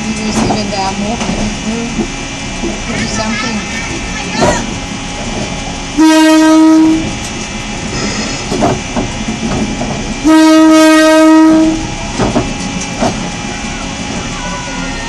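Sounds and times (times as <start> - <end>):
wheels clicking over rail joints: 0.0 - 5.8, 7.0 - 10.3, 11.4 - 15.0
train rumbling slowly: 0.0 - 15.0
train horn blast: 6.0 - 7.2, 10.2 - 12.0.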